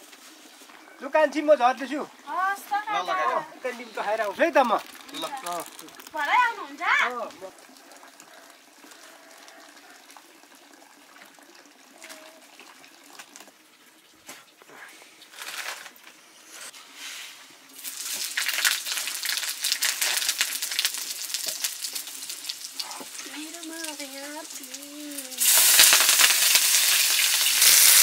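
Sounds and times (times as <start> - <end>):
food sizzling in hot oil: 1.8 - 7.9, 16.7 - 28.0
faint hiss: 14.2 - 28.0.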